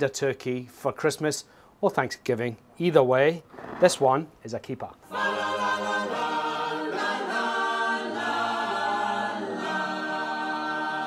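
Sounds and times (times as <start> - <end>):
choir singing held chords: 5.1 - 11.0.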